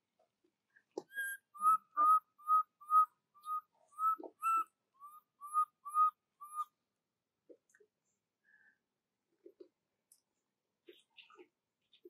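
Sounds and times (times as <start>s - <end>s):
baby monkey whistle-like cries: 1.1s - 6.7s.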